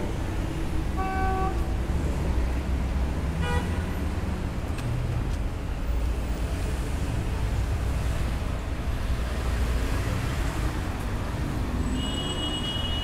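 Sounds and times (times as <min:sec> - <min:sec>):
traffic rumble: 0:00.0 - 0:13.0
car horn toot: 0:01.0 - 0:01.6, 0:03.4 - 0:03.8, 0:11.9 - 0:13.0.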